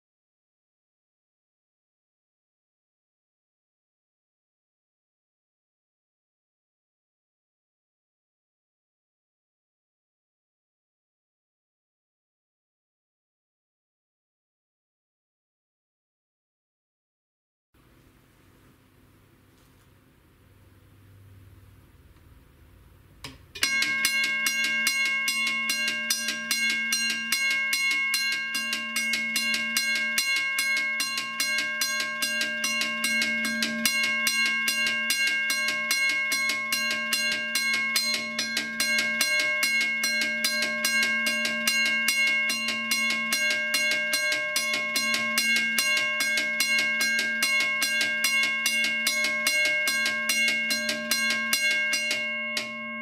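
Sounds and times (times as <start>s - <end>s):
railroad crossing bell ringing: 23.6s - 53.0s.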